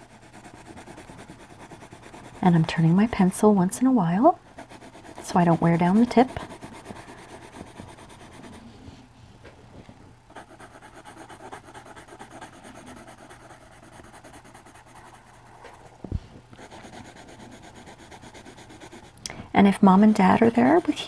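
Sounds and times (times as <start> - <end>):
pencil shading on paper: 0.0 - 3.3, 4.6 - 8.7, 10.3 - 15.6, 16.6 - 19.2, 20.2 - 21.0.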